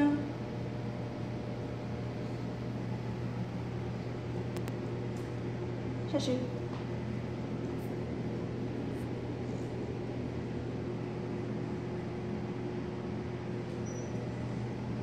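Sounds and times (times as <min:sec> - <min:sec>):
fan hum: 0:00.0 - 0:15.0.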